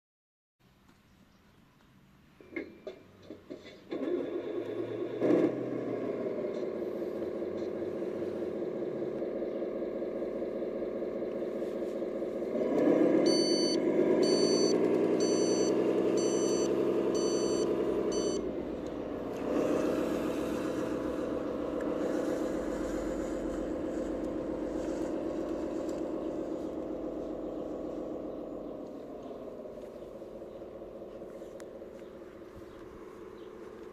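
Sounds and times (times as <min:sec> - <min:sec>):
model truck diesel engine sound: 0:02.4 - 0:33.9
beeper: 0:13.3 - 0:18.4.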